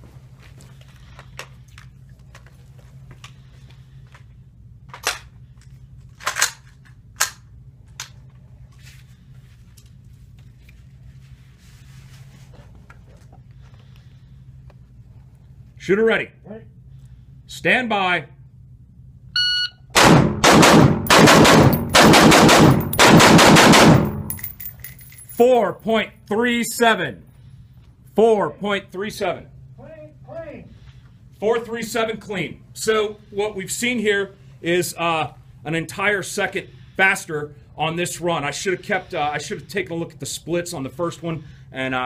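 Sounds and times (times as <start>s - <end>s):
low steady hum: 0.0s - 42.0s
rifle shots echoing indoors: 19.9s - 24.6s.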